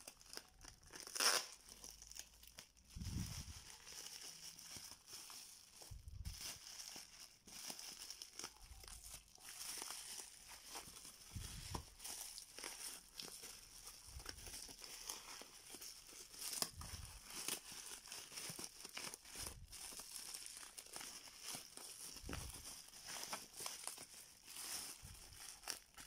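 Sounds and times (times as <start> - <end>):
bubble wrap crinkling: 0.0 - 26.0.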